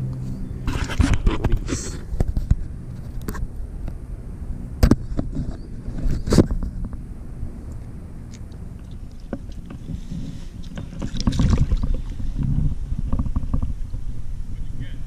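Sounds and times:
wind rumble on microphone: 0.0s - 15.0s
scuffle in water: 0.6s - 2.1s, 8.3s - 13.8s
water splashing: 8.2s - 13.9s.

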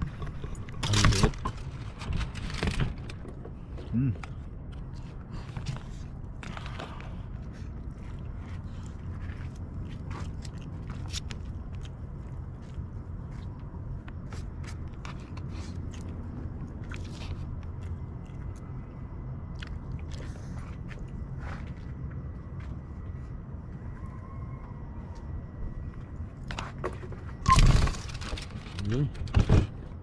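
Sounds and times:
chewing: 4.0s - 13.5s, 14.6s - 21.9s.

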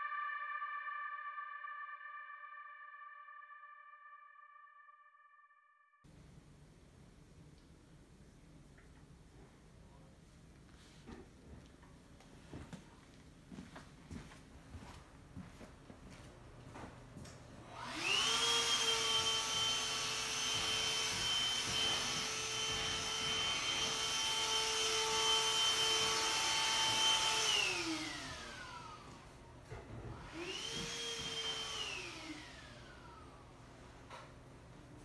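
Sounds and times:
small electric motor whining: 17.7s - 29.2s, 30.1s - 33.4s.

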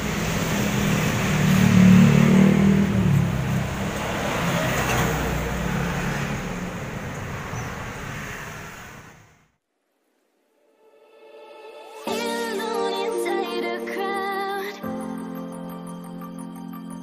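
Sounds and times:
traffic noise: 0.0s - 9.6s.

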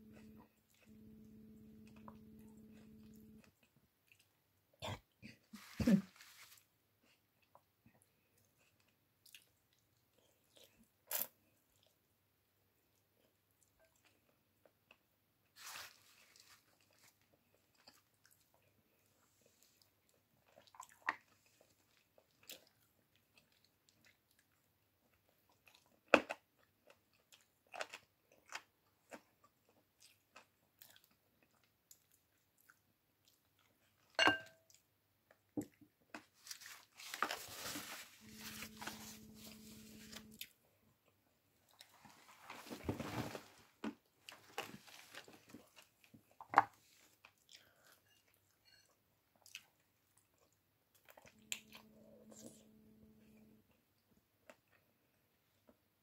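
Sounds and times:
person chewing: 0.0s - 5.0s, 16.1s - 34.8s, 36.1s - 42.3s, 44.3s - 55.6s
short rustle: 36.4s - 40.3s.

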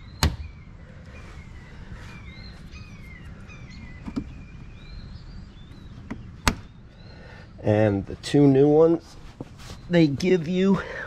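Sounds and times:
songbirds chirping: 0.0s - 11.0s.

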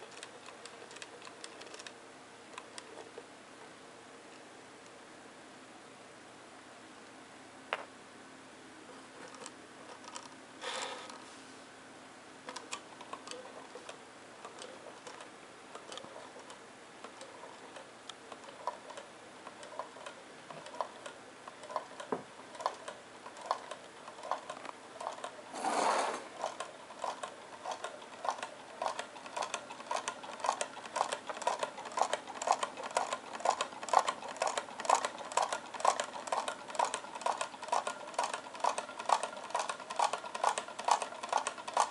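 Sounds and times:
stirling engine crank clicking: 0.0s - 1.9s, 12.5s - 41.9s.

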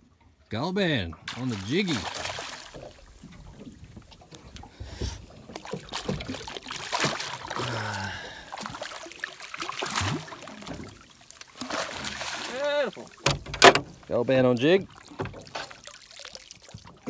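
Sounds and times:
fish splashing at surface: 1.3s - 3.7s, 5.0s - 13.4s.

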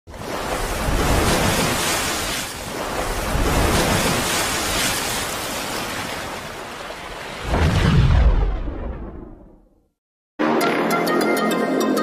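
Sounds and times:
rushing water surge: 0.1s - 9.4s.

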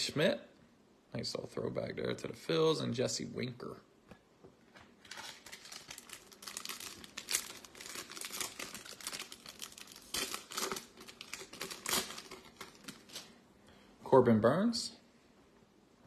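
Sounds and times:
card pack wrapper crinkling and ripping: 5.0s - 13.4s.

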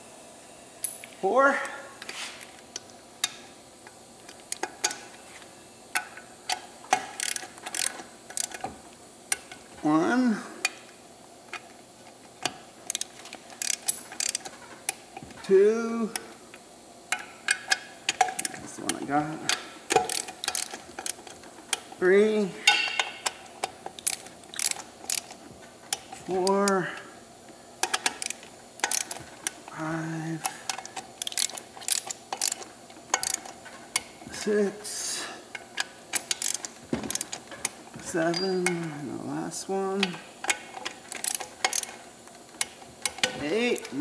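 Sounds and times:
hand tools clicking on metal: 12.4s - 15.0s, 17.1s - 22.0s, 22.6s - 26.8s, 27.8s - 29.8s, 30.4s - 34.5s, 35.5s - 38.9s, 40.0s - 44.0s.

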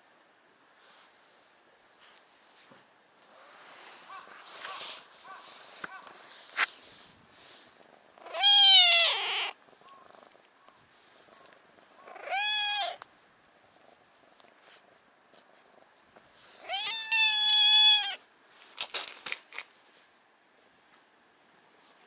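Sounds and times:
quiet rustling: 0.6s - 8.3s, 9.6s - 12.2s, 13.0s - 16.8s, 18.4s - 22.0s
cat meowing loudly: 8.2s - 9.6s, 12.1s - 13.0s, 16.6s - 18.2s.

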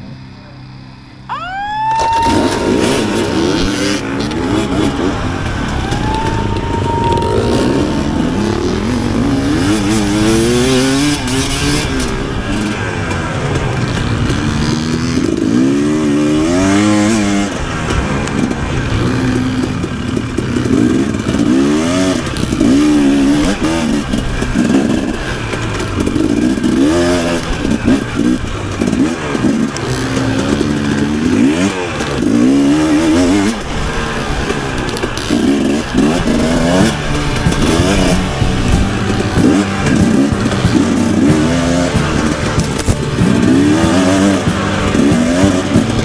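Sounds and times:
dirt bike engine revving: 0.0s - 46.0s.

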